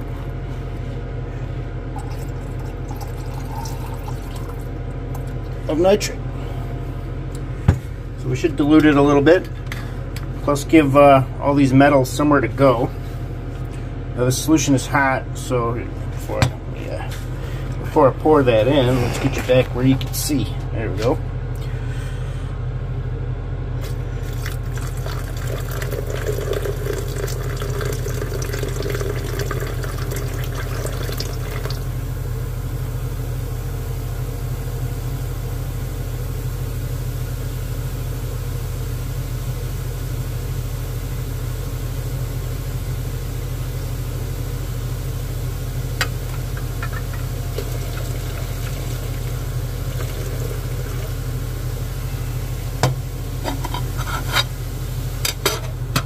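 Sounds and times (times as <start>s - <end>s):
steady low hum: 0.0s - 56.0s
liquid pouring into glass beaker: 2.0s - 4.7s, 24.2s - 31.8s.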